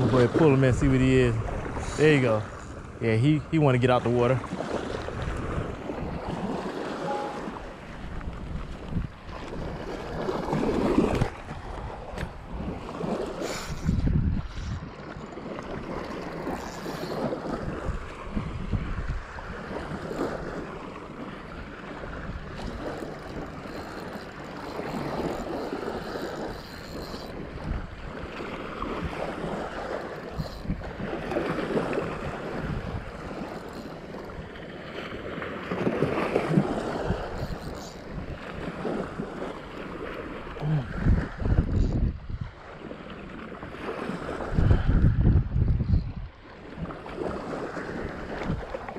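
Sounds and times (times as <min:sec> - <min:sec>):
surf washing on beach: 0:00.0 - 0:22.8
wind buffeting microphone: 0:00.0 - 0:43.0, 0:43.6 - 0:48.9.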